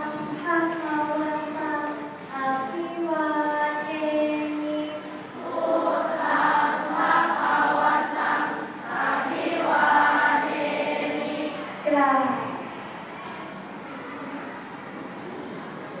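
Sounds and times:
children chanting in unison: 5.3s - 11.9s.

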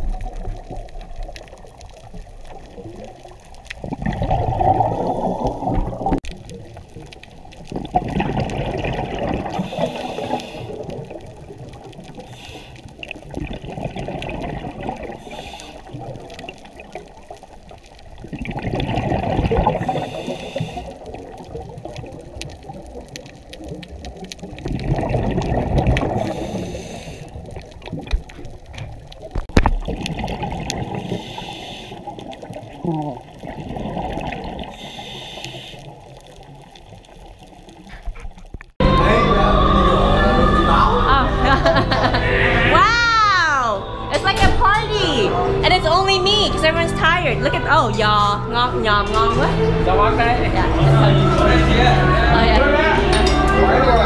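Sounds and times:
exhaled breath bubbling underwater: 0.0s - 6.2s, 7.6s - 17.3s, 18.1s - 28.7s, 29.8s - 36.8s
regulator inhalations: 9.7s - 10.8s, 12.3s - 13.0s, 15.2s - 16.0s, 19.8s - 21.0s, 26.2s - 27.4s, 31.0s - 32.1s, 34.7s - 35.9s.

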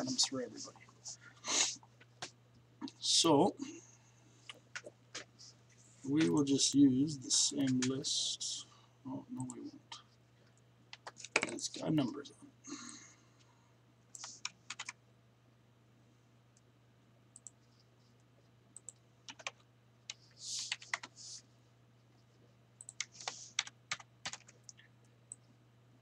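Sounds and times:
keyboard typing: 10.9s - 11.6s, 14.2s - 15.0s, 18.8s - 21.2s, 22.8s - 25.5s.

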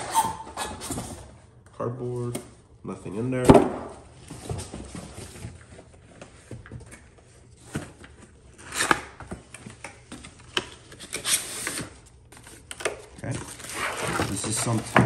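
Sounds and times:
cardboard scraping: 10.9s - 15.0s.

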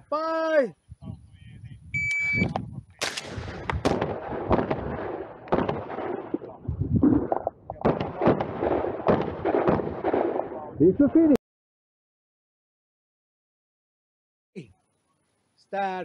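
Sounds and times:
shotgun firing: 3.0s - 6.6s, 7.8s - 10.7s.

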